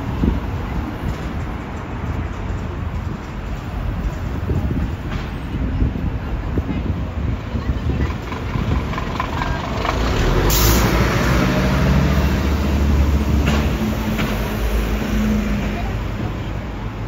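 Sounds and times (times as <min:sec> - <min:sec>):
bus engine running: 0:00.0 - 0:17.0
fire engine diesel engine: 0:00.0 - 0:17.0
air brakes hissing: 0:10.5 - 0:10.9.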